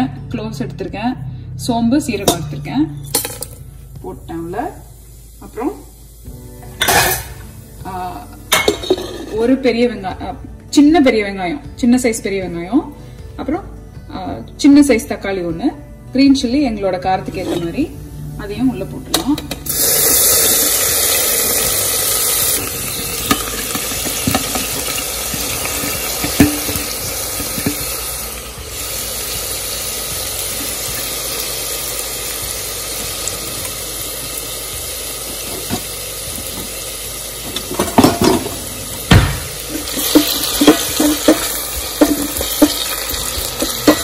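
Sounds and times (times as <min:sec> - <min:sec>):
vegetables sizzling in hot oil: 0:03.0 - 0:10.1, 0:19.1 - 0:44.0
spatula stirring and knocking pot: 0:23.0 - 0:28.1, 0:39.6 - 0:44.0.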